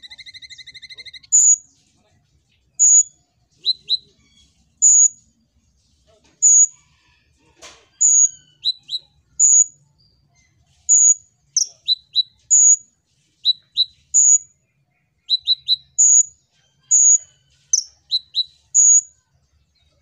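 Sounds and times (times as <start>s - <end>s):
sunbird high chirps: 0.0s - 1.7s, 2.7s - 5.3s, 6.4s - 6.7s, 8.0s - 19.2s.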